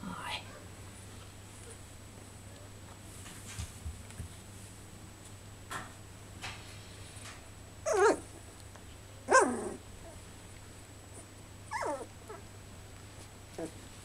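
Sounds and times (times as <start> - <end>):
puppies barking: 7.9 - 8.3.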